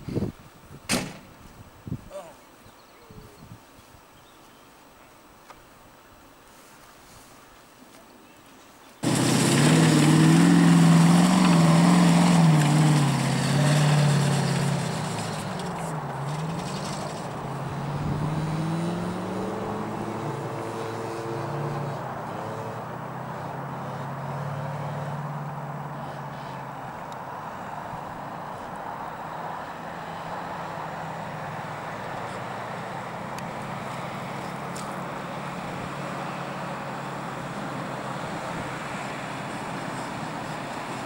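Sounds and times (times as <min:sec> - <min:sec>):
engine revving hard: 0:09.0 - 0:26.5.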